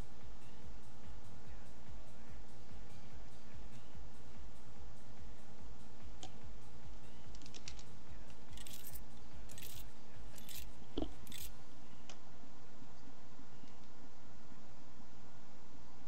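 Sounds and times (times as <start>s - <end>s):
quiet background music: 0.0s - 16.0s
sharp scratchy clicks: 8.5s - 11.5s.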